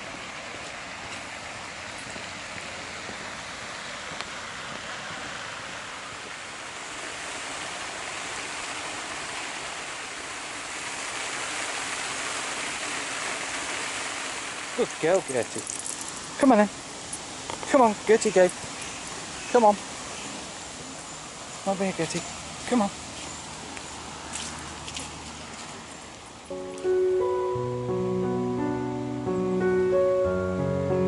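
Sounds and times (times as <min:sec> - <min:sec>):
fountain water splashing: 0:00.0 - 0:27.3.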